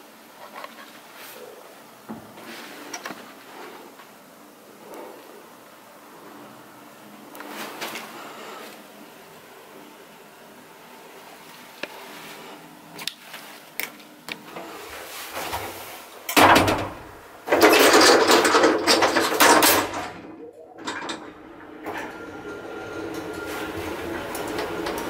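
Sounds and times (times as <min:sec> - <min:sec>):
elevator machinery starting: 0:14.4 - 0:25.0
elevator doors rattling shut: 0:15.4 - 0:25.0.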